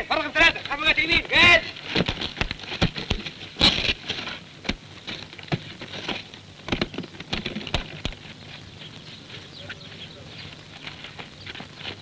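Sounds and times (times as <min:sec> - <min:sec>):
cases being set down: 0:01.4 - 0:08.2
running feet on sand: 0:08.2 - 0:12.0.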